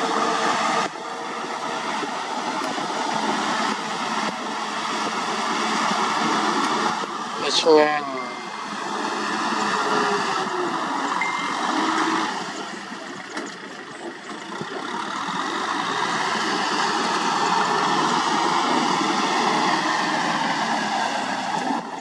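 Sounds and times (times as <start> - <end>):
tractor diesel engine under load: 0.0 - 22.0.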